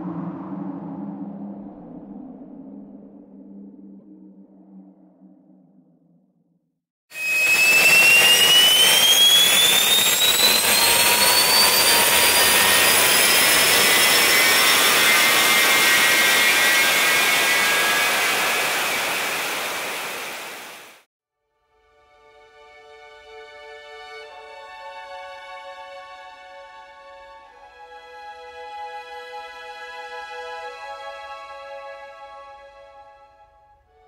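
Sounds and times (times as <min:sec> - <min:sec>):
rushing roar with rising whine: 0:00.0 - 0:06.0, 0:07.2 - 0:21.0.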